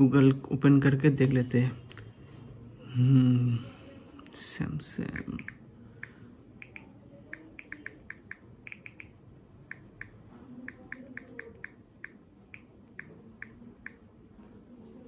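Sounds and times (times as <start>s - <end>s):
phone keyboard key-press clicks: 5.1s - 9.1s.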